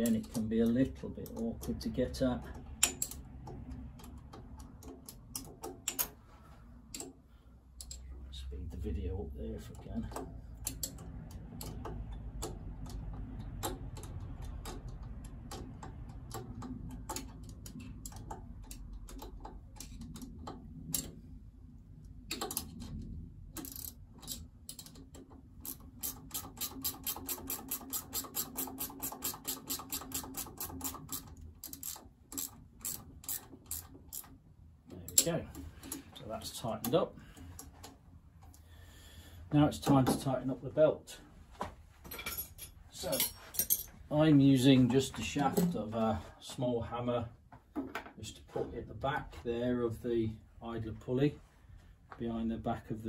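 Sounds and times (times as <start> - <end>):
ratchet wrench clicking: 2.4 - 6.2, 10.1 - 21.2, 23.6 - 34.4.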